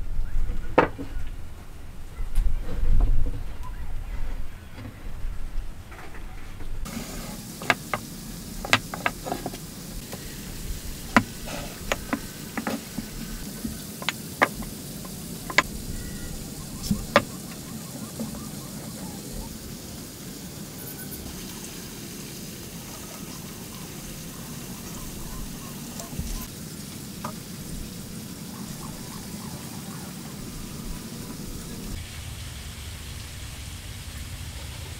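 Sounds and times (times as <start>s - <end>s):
steady background hiss: 6.7s - 34.9s
wood knocking on workbench: 7.6s - 9.6s, 11.1s - 13.1s, 15.5s - 15.7s, 16.8s - 17.4s.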